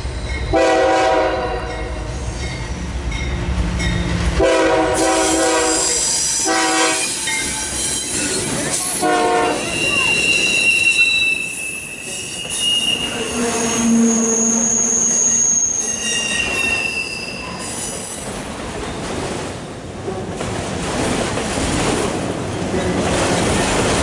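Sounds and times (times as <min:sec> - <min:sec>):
train wheels squealing: 0:02.0 - 0:02.9, 0:05.0 - 0:19.0.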